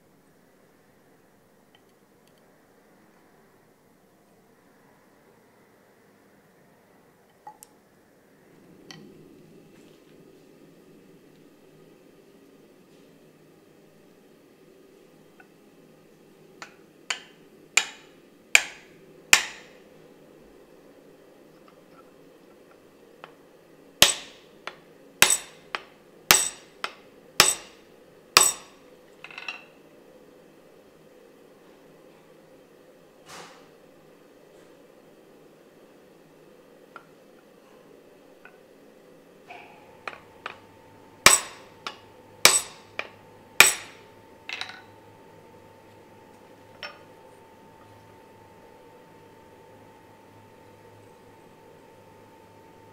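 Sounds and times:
hammer blows ringing on metal: 17.1 - 19.8, 24.0 - 24.4, 25.2 - 27.8, 28.4 - 28.8, 40.1 - 44.7
small metal clink: 28.4 - 29.7, 40.1 - 44.9, 46.7 - 47.1.

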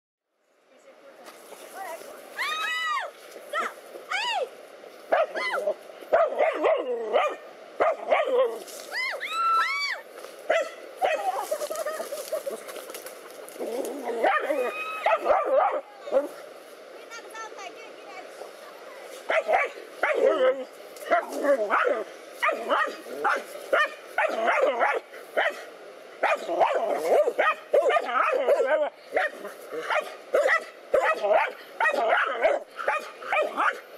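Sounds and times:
dogs barking: 6.1 - 8.6, 10.5 - 11.4, 13.2 - 16.4, 19.3 - 33.9
dogs yelping: 10.5 - 16.2, 26.2 - 33.8.

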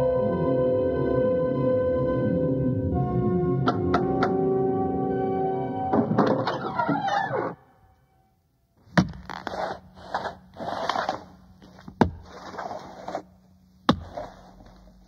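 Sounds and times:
faint steady hum: 4.4 - 15.0
scraping noise: 9.3 - 13.4.

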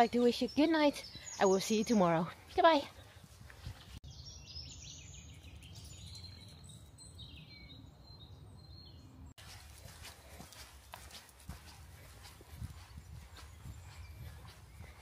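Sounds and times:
birds chirping and whistling: 0.0 - 9.2, 12.2 - 15.0.

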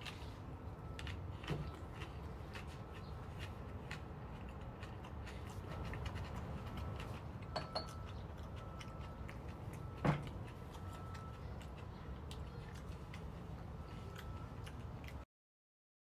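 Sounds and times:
low steady hum: 0.0 - 15.2.

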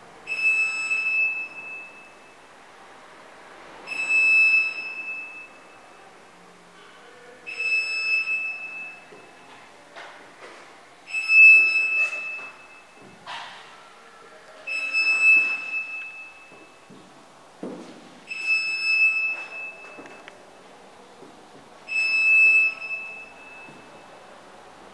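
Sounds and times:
electronic alarm beeps: 0.3 - 2.4, 3.9 - 6.0, 7.5 - 9.4, 11.1 - 13.2, 14.7 - 16.8, 18.3 - 20.3, 21.9 - 24.2
faint irregular noises: 5.5 - 24.9.

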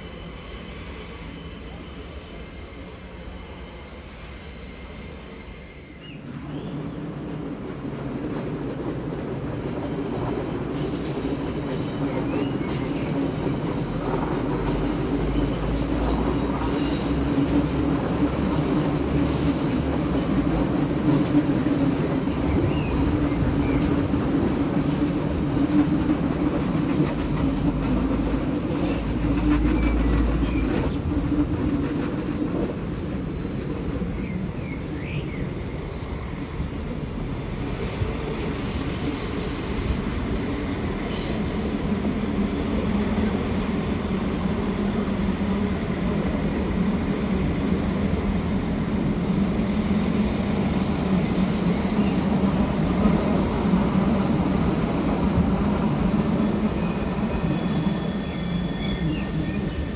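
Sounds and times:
wheels squealing: 0.0 - 6.2, 37.8 - 48.3, 56.6 - 59.9
train wheels rumbling on rails: 0.0 - 59.9.

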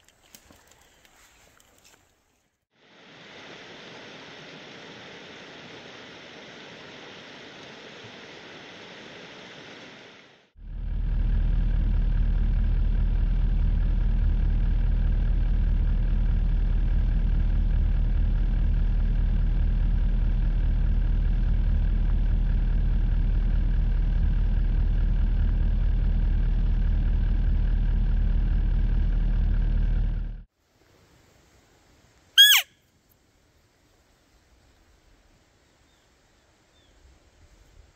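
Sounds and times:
engine idling: 9.8 - 30.5.

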